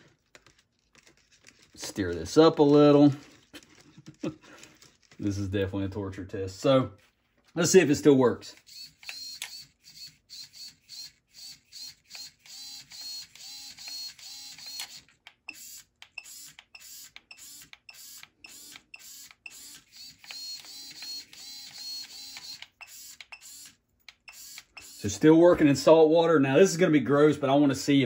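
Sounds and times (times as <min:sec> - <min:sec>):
servos whirring: 0:08.6 - 0:25.2.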